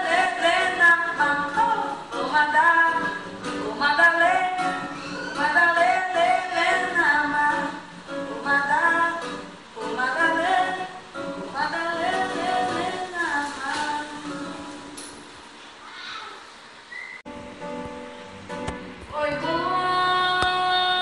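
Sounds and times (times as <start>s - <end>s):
woman singing: 0.0s - 14.9s, 19.1s - 21.0s.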